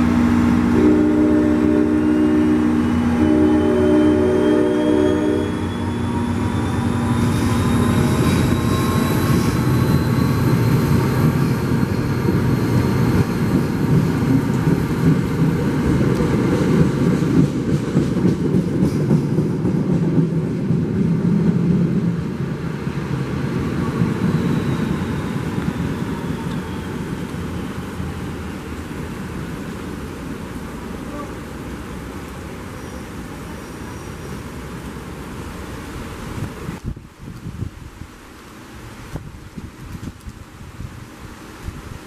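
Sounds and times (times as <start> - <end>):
thin train whine: 0.0 - 37.0
train engine and wheels rumbling: 0.0 - 42.0
train horn blast: 0.1 - 10.2, 31.0 - 31.5.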